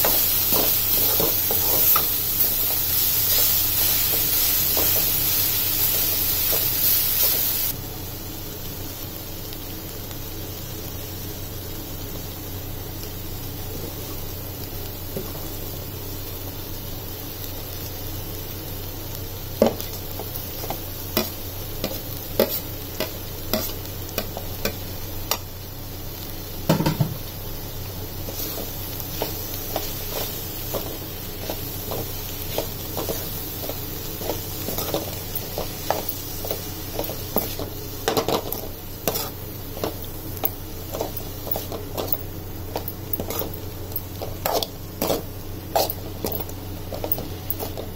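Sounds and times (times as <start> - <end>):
frying sizzle: 0.0 - 47.9
spatula scraping a pan: 21.2 - 23.8, 34.2 - 39.9, 44.2 - 46.0.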